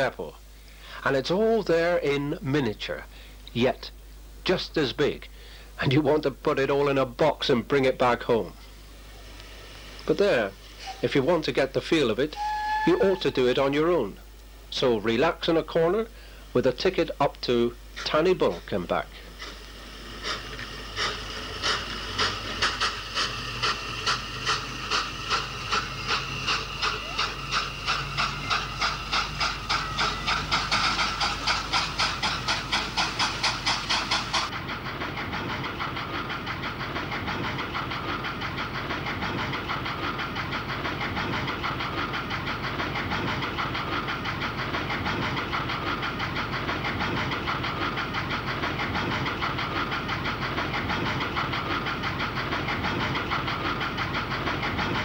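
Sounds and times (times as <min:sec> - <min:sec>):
steam locomotive exhaust beats: 0:05.3 - 0:55.0.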